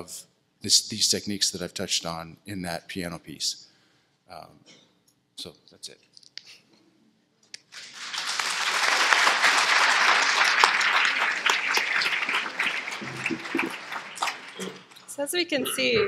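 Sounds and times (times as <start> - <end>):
audience applauding: 7.7 - 15.2.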